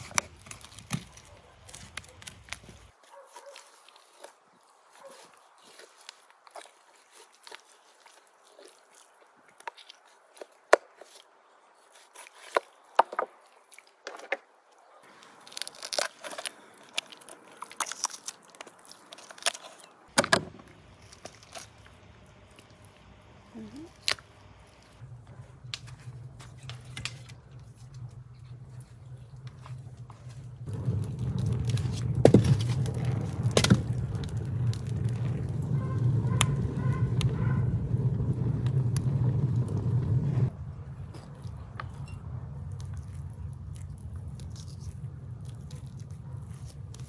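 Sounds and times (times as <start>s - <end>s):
shears snipping bones: 0.0s - 13.0s, 15.1s - 22.8s
wooden logs knocking: 20.1s - 20.8s.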